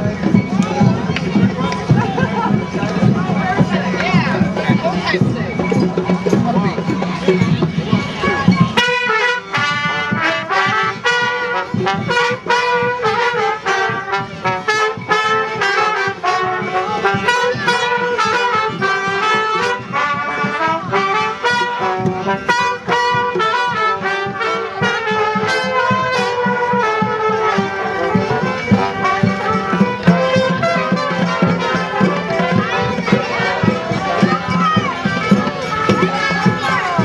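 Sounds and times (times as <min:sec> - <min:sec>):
brass marching band playing: 0:00.0 - 0:37.0
steady drum beat: 0:00.0 - 0:37.0.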